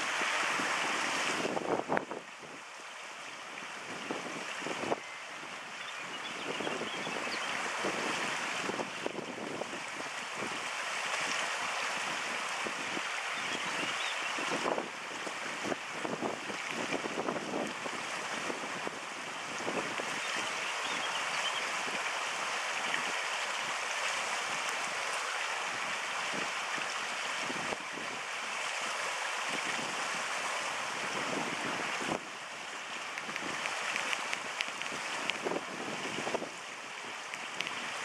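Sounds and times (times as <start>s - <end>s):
stream rushing over rocks: 0.0s - 38.0s
wind buffeting microphone: 0.1s - 2.3s, 29.5s - 32.3s, 33.2s - 38.0s.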